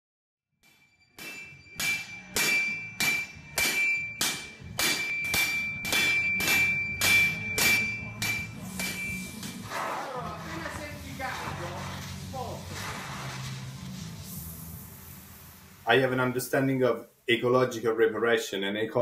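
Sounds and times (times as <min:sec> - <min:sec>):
sledgehammers striking metal bar: 0:00.6 - 0:09.8.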